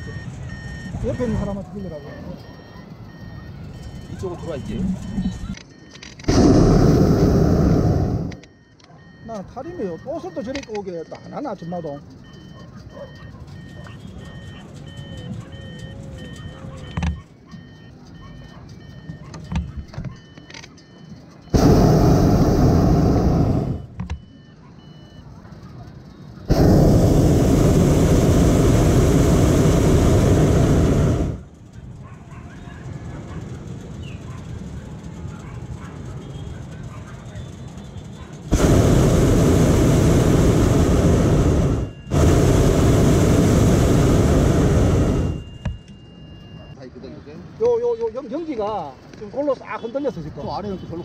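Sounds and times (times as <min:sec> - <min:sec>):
faint repeating beep: 0:00.0 - 0:26.9, 0:41.2 - 0:42.5, 0:44.9 - 0:46.8, 0:49.8 - 0:51.0
propane burner firing: 0:06.3 - 0:08.4, 0:21.5 - 0:24.0, 0:26.5 - 0:31.7, 0:37.6 - 0:45.8.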